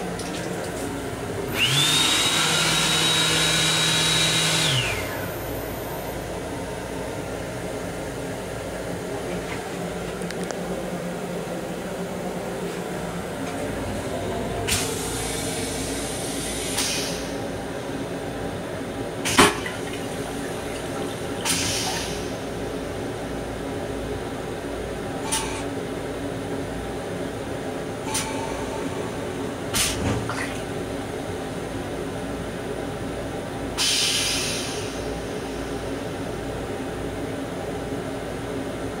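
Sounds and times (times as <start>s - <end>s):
toilet water swirling and draining: 0.0s - 1.2s, 19.3s - 22.2s.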